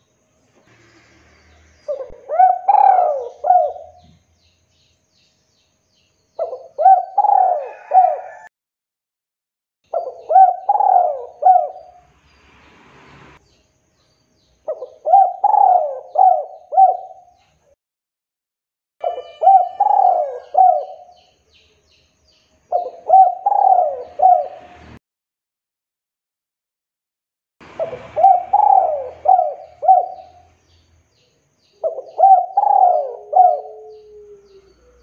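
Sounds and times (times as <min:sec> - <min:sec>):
dove cooing: 0:01.8 - 0:04.2, 0:06.4 - 0:08.5, 0:09.9 - 0:12.0, 0:14.7 - 0:17.4, 0:19.0 - 0:21.1, 0:22.7 - 0:24.8, 0:27.7 - 0:30.5, 0:31.8 - 0:35.0.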